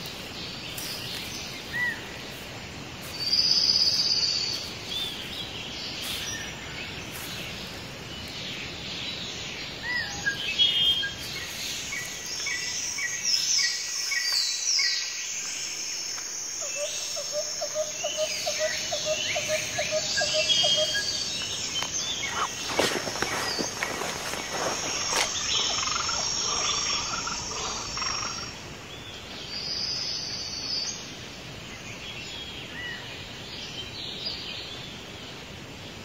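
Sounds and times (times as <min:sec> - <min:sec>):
insects droning: 0:00.0 - 0:36.0
birds chirping and calling: 0:16.6 - 0:28.9.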